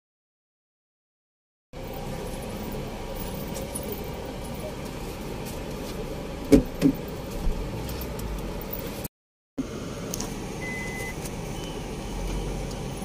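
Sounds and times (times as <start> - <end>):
car engine running: 1.8 - 13.0
short high beep: 10.6 - 11.8.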